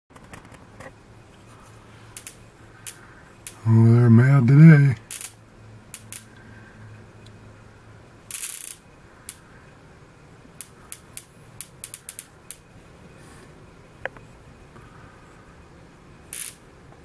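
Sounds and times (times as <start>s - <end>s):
bug zapper zapping: 2.1s - 3.7s, 5.0s - 6.4s, 8.2s - 9.5s, 10.6s - 12.7s, 16.3s - 16.7s.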